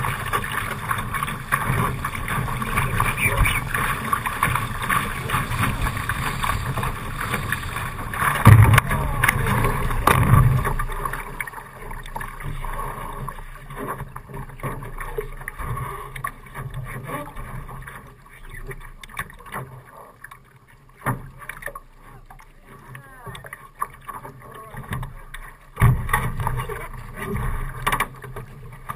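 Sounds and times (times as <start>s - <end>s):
wind on microphone: 0.0s - 10.7s
water rushing past hull: 0.0s - 28.9s
water sloshing: 0.0s - 28.9s
water surging and thudding: 0.0s - 28.9s
knocks against hull: 1.5s - 11.5s, 25.7s - 28.6s.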